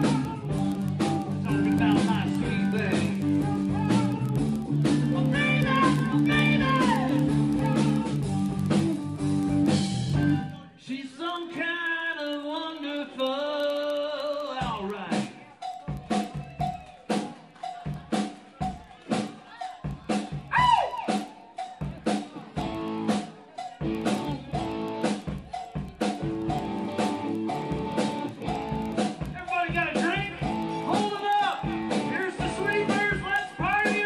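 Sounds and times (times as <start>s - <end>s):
person singing: 0.0s - 8.6s, 10.3s - 16.8s, 17.6s - 34.0s
bending guitar lines: 0.0s - 10.6s, 22.6s - 34.0s
live band playing: 0.0s - 10.6s, 13.9s - 34.0s.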